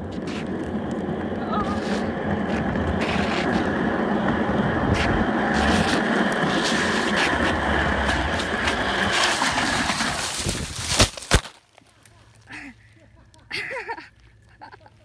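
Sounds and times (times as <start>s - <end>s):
chair casters rolling on asphalt: 0.0s - 11.0s.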